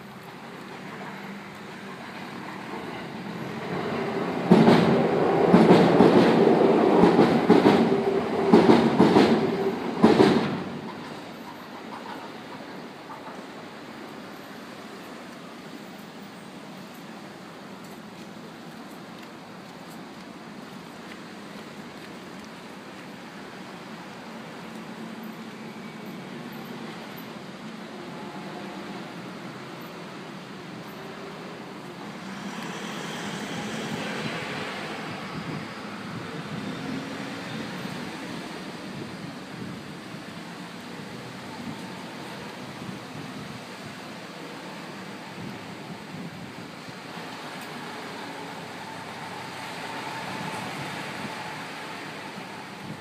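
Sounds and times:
rushing hiss: 28.8 - 53.0.

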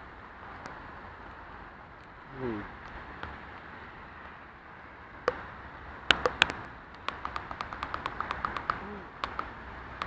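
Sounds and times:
light even clicks: 6.1 - 10.0.

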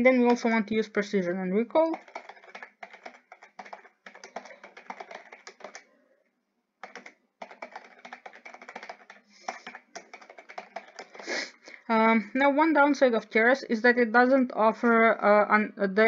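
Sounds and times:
computer keyboard typing: 0.0 - 5.9, 6.8 - 11.6.

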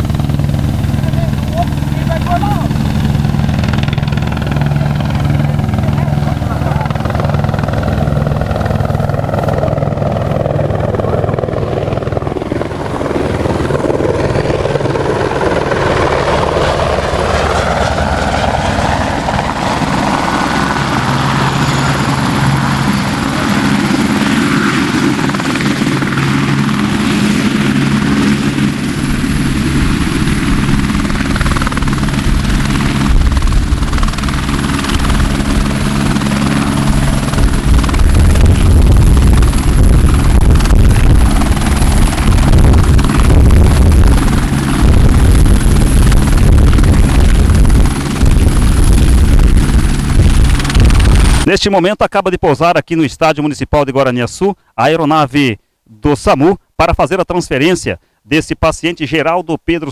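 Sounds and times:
helicopter rotor and turbine engine: 0.0 - 51.6.

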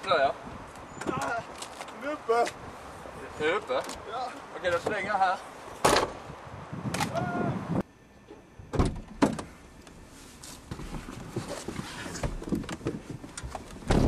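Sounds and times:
person clambering over car seats: 10.6 - 14.0.

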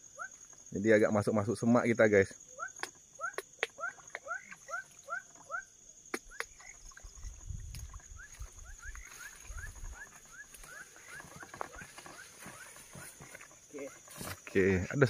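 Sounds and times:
high insect drone: 0.0 - 15.0
animal chirping: 2.5 - 6.9, 8.0 - 13.1
leaves and stems brushing: 7.6 - 15.0.

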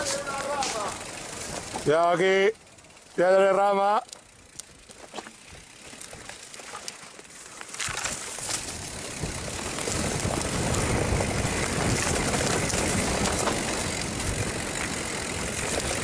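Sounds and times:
bike tyre and frame rattle: 0.0 - 16.0
wind rushing over microphone: 8.6 - 16.0.

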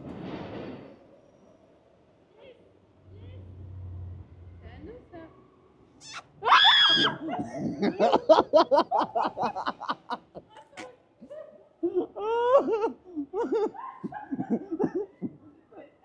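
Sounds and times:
person laughing hard: 6.9 - 10.4, 11.8 - 15.4.

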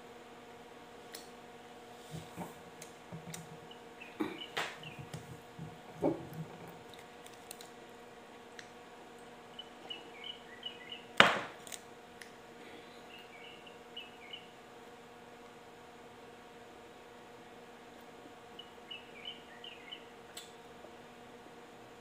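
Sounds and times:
faint high chirps: 9.5 - 11.1, 12.8 - 14.6, 18.5 - 20.1.

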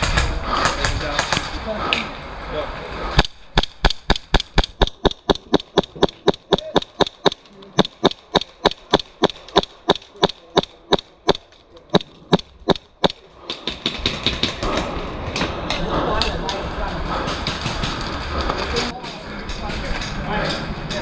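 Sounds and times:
airsoft pistol shots: 3.2 - 11.4.

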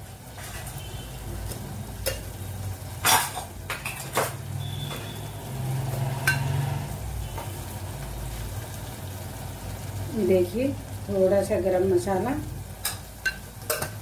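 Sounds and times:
utensils clinking on steel pot: 1.5 - 2.4, 3.0 - 5.2, 6.0 - 6.7, 12.8 - 14.0.

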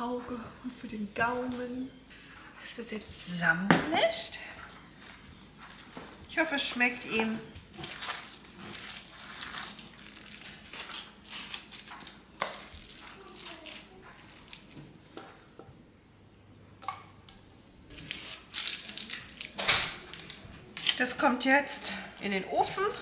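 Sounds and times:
metal bowl clinks and scrapes: 4.1 - 14.8
minced meat squishing: 4.6 - 15.0, 17.9 - 21.0.

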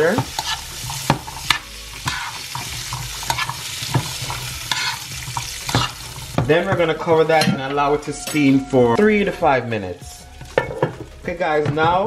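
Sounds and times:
beans clicking against pan: 0.0 - 6.1
beans sizzling in butter: 0.0 - 7.4, 9.6 - 11.7.

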